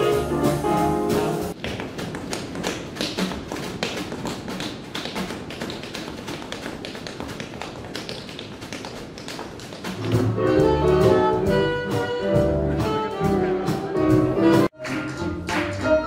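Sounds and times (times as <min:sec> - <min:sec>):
quick sharp taps and clicks: 0:01.6 - 0:10.3.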